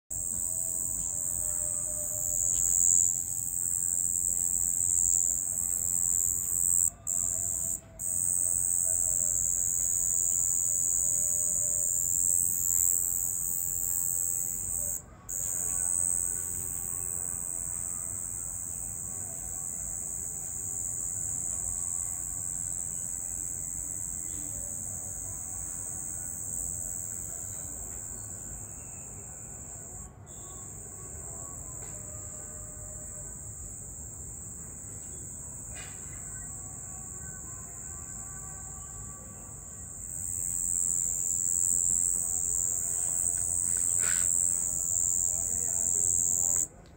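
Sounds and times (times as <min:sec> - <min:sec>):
crickets trilling: 0:00.1 - 0:46.7.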